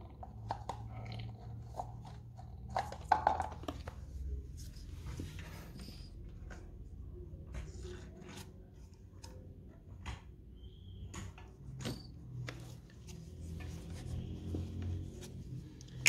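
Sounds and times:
brief squeak: 11.8s - 12.1s.

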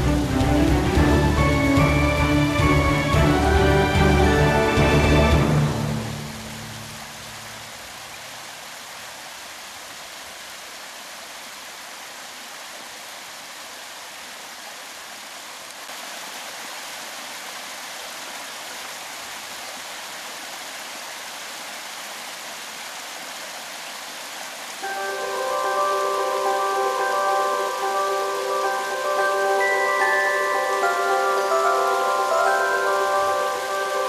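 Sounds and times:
running water rushing: 0.0s - 34.0s.

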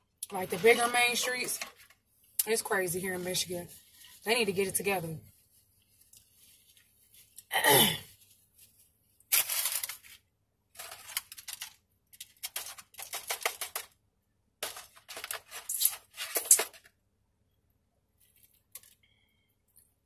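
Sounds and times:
paper wrapper rustling: 3.2s - 7.4s, 8.2s - 13.9s, 14.6s - 16.9s.

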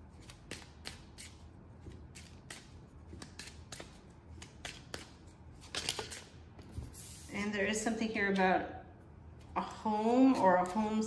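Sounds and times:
cards being shuffled: 0.1s - 7.1s.

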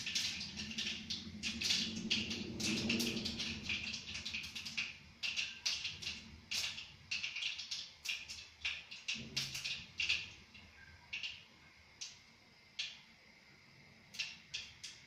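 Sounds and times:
mustard seeds popping in hot oil: 0.0s - 13.4s, 14.0s - 15.0s.

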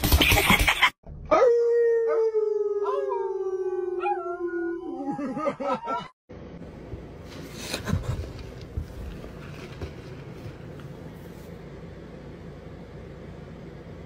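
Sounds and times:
dog howling: 1.3s - 5.3s.

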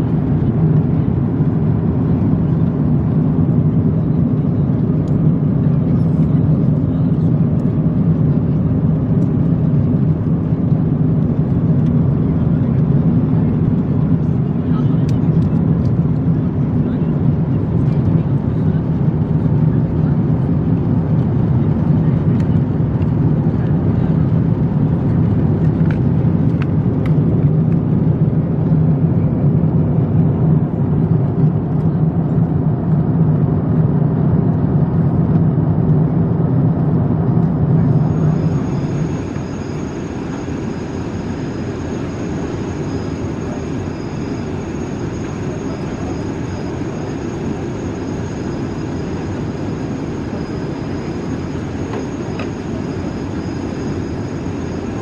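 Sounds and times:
aircraft cabin noise: 0.0s - 55.0s
faint high whine: 37.8s - 55.0s.

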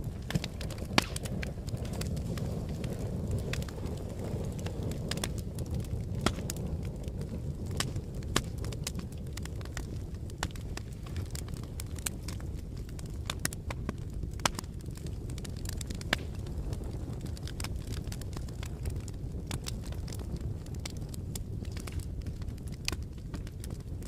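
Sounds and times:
low rumble of fire: 0.0s - 24.0s
wood fire crackling and popping: 0.0s - 24.0s.

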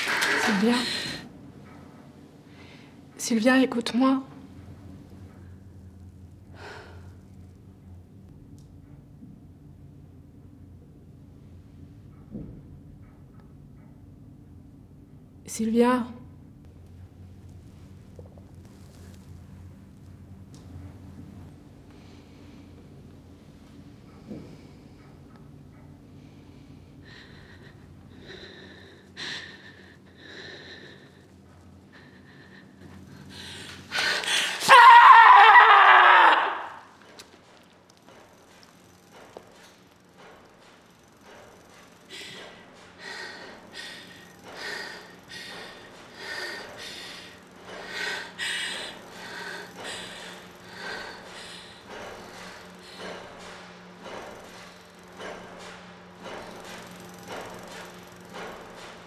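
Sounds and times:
low steady hum: 0.0s - 59.0s
woman breathing heavily: 0.4s - 1.4s, 2.4s - 3.0s, 6.4s - 7.3s, 26.0s - 34.7s, 41.6s - 54.3s
woman gasping breaths: 42.1s - 53.2s.

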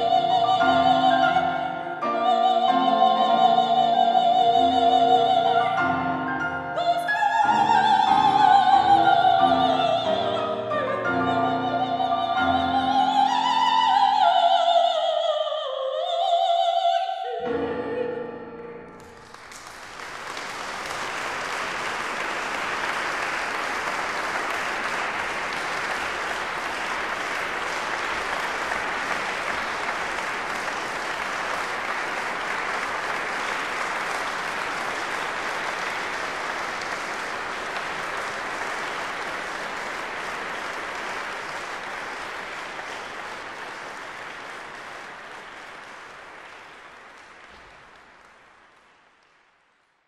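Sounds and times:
audience applauding: 4.6s - 10.6s, 18.9s - 49.6s.

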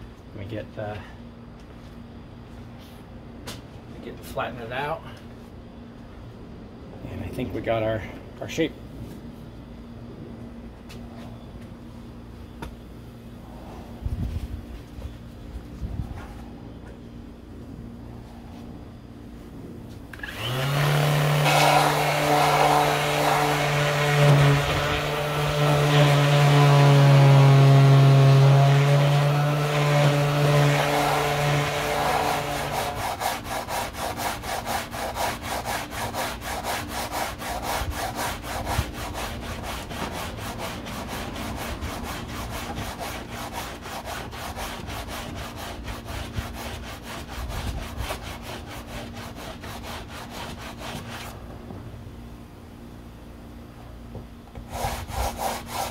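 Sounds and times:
electric power tool motor hum: 20.2s - 33.1s
hand sanding strokes: 20.3s - 51.4s, 54.6s - 55.9s.

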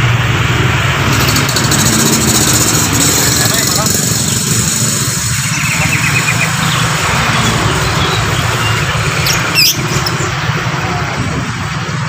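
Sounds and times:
engine idling: 0.0s - 12.0s
bird trill: 1.7s - 10.4s
sharp sweeping bird call: 4.5s - 10.5s.

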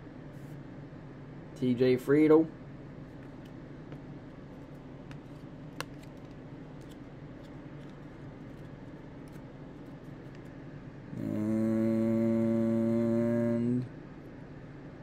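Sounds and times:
low steady hum: 0.0s - 15.0s
cards being shuffled: 4.6s - 10.6s
person humming: 11.1s - 13.9s.

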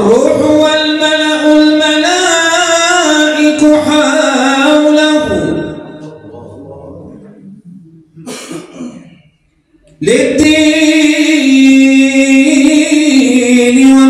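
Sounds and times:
man singing devotional chant: 0.0s - 5.8s, 10.0s - 14.0s
person coughing: 8.2s - 9.4s.

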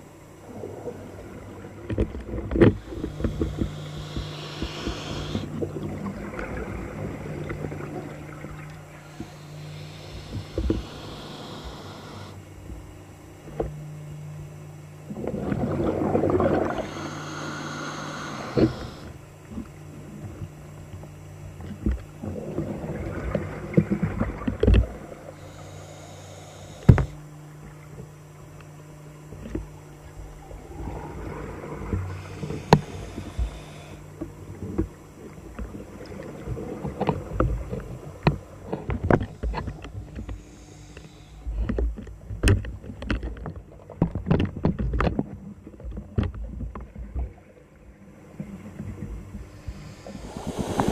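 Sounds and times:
steady low hum: 0.0s - 50.9s.

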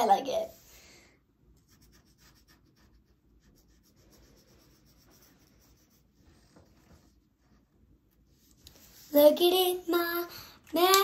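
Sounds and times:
markers rubbing on paper: 1.6s - 7.1s.

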